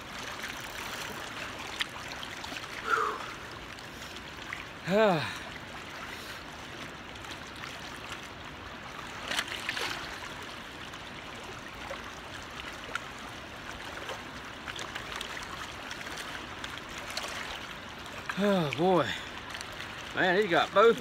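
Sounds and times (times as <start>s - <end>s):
river water rushing: 0.0s - 21.0s
water trickling and splashing: 0.0s - 21.0s.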